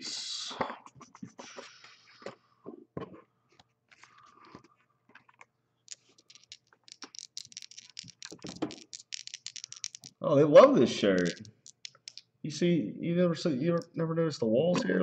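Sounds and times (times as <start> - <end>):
small hard objects clicking: 5.9 - 10.2, 11.0 - 12.3.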